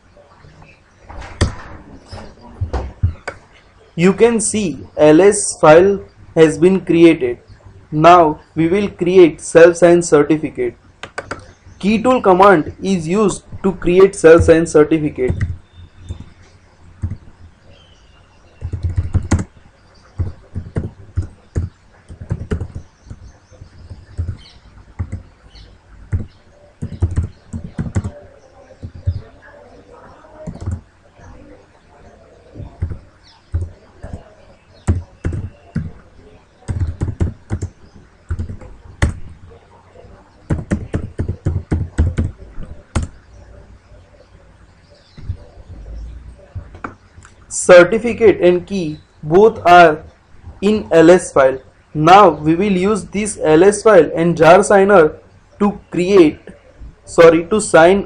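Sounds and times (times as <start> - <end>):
computer keyboard typing: 11.0 - 11.5, 15.2 - 16.4, 17.0 - 17.3, 18.6 - 25.3, 26.1 - 29.3, 30.4 - 30.8, 32.6 - 36.0, 36.6 - 39.4, 40.5 - 43.2.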